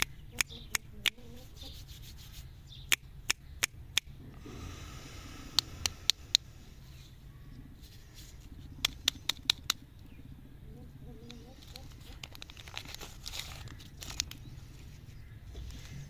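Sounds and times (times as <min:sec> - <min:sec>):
wrapper crackling: 0:11.3 - 0:15.1
wrapper rustling: 0:11.3 - 0:15.1.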